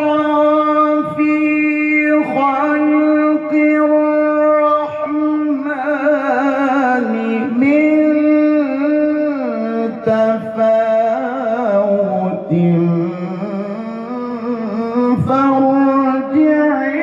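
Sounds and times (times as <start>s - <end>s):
man reciting melodically into microphone: 0.0s - 17.0s.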